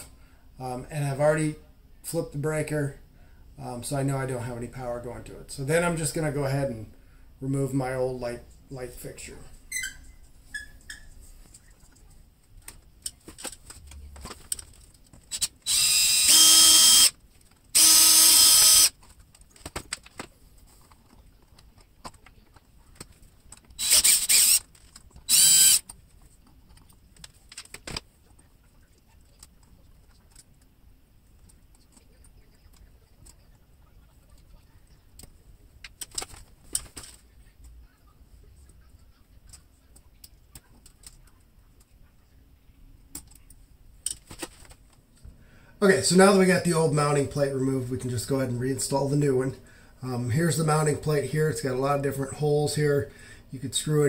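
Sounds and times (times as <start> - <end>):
cordless drill motor whine: 15.3 - 19.0, 23.8 - 24.6, 25.3 - 25.8.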